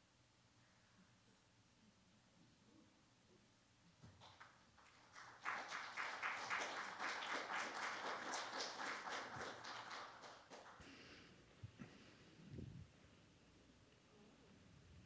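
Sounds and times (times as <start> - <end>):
congregation applauding: 4.2 - 10.9.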